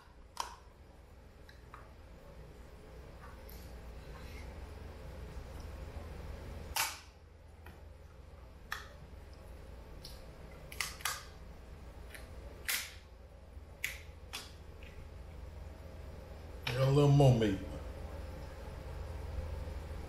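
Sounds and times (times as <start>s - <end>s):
low steady hum: 0.0s - 20.0s
lobster shell cracking: 10.0s - 11.3s.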